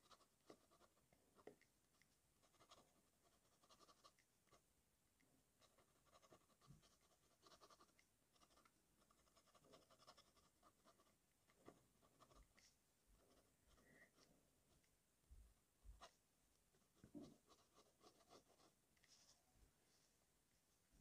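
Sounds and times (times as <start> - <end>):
pen nib scratching on paper: 0.0 - 4.7, 5.6 - 14.9, 17.0 - 19.2.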